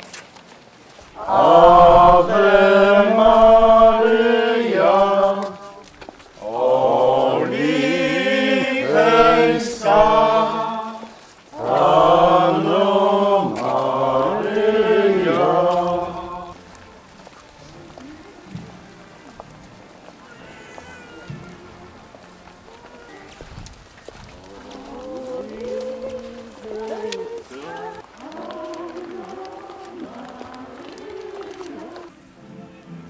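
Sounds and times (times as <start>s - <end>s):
voices singing a hymn: 1.0s - 16.8s, 24.3s - 33.0s.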